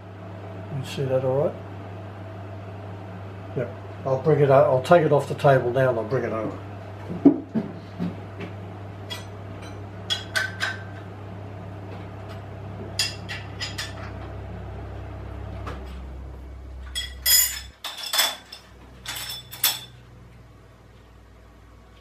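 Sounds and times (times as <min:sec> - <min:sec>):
low machine hum: 0:00.0 - 0:22.0
spanner clinking on metal: 0:17.0 - 0:20.0.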